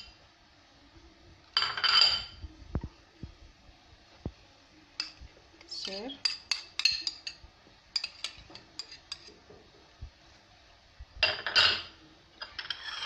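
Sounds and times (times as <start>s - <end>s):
metal spoon clinking on dishes: 1.6s - 2.4s, 5.8s - 9.4s, 11.2s - 13.0s.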